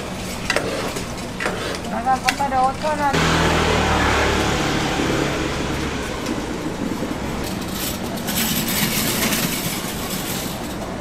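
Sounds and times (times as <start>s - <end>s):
low motor hum: 3.1s - 8.0s.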